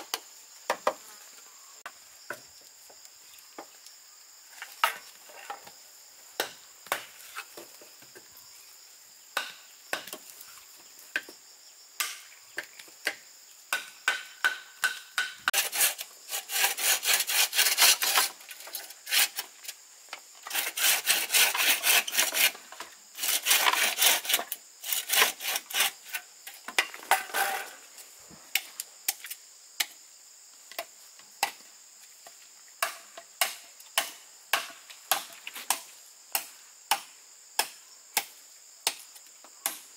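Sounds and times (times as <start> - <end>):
high insect drone: 0.0 - 39.9
sharp knocks on bamboo: 0.1 - 1.0, 6.4 - 7.7, 9.4 - 10.3, 12.0 - 15.6, 32.8 - 39.8
hand sawing strokes: 14.1 - 19.6, 20.4 - 26.2.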